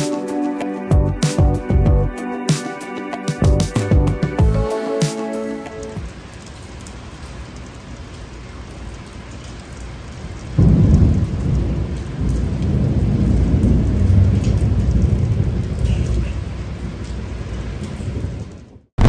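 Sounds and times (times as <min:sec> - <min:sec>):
steady rain: 0:03.3 - 0:19.0
thunder rumbling: 0:10.6 - 0:18.8.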